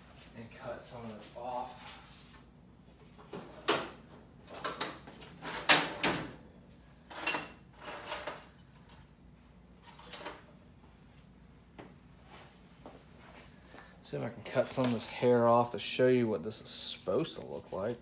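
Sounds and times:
objects scraping and rattling: 0:07.0 - 0:09.2.

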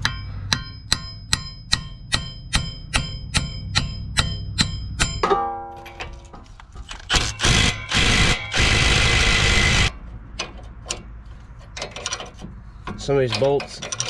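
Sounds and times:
wrenches clicking on bolts: 0:10.4 - 0:14.0.

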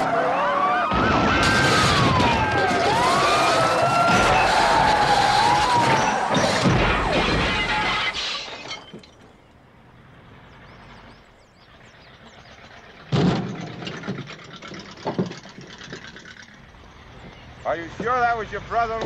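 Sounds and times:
police sirens wailing: 0:00.0 - 0:08.2
car crash crunching metal: 0:00.0 - 0:09.4, 0:13.1 - 0:14.4
glass shattering: 0:01.0 - 0:09.4.

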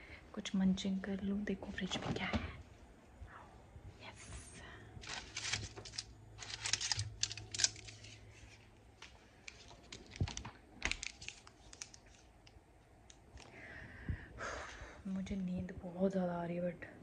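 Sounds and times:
faint low hum: 0:00.0 - 0:17.0
plastic wrapper crinkling and tearing: 0:05.0 - 0:13.5.

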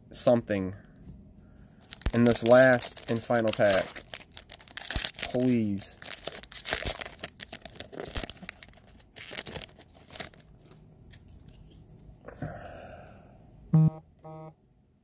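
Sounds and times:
wrapper tearing and crinkling: 0:01.8 - 0:10.8
paper rustling: 0:01.8 - 0:12.1
short low grunts: 0:12.3 - 0:13.0.

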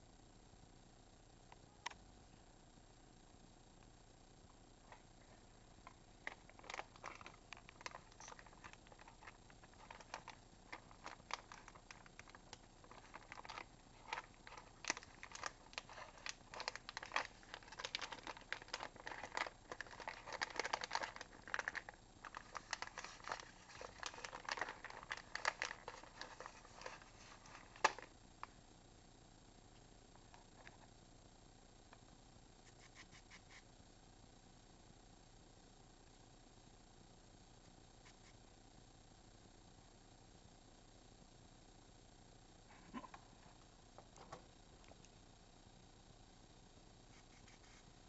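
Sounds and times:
rats rustling in bedding: 0:04.9 - 0:28.1, 0:47.1 - 0:47.9.

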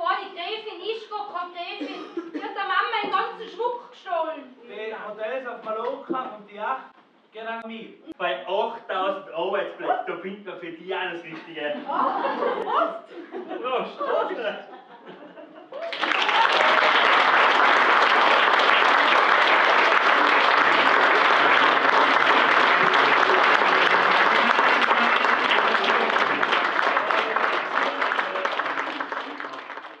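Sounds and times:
audience applauding: 0:15.8 - 0:30.0.

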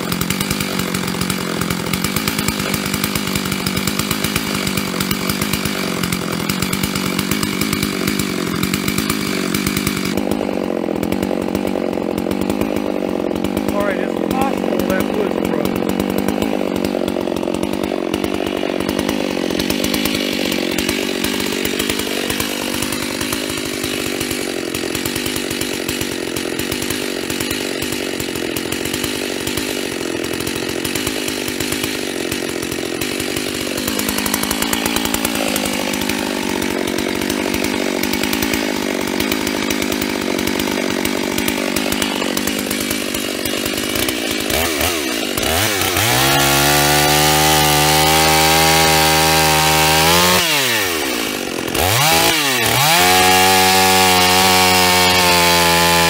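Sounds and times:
chainsaw cutting through log: 0:00.0 - 0:56.0.

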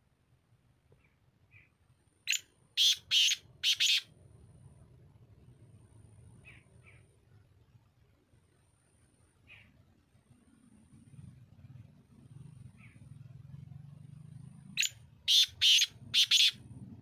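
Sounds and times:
francolin harsh calls: 0:02.3 - 0:04.1, 0:14.8 - 0:16.6.

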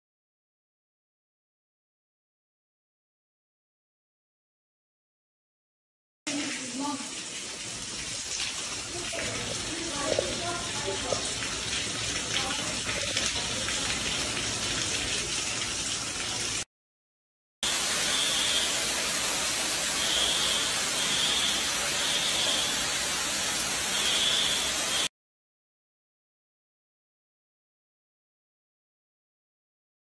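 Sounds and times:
water gushing down stairwell: 0:06.3 - 0:16.7, 0:17.6 - 0:25.1
water splashing onto floor: 0:06.3 - 0:16.7, 0:17.6 - 0:25.1.

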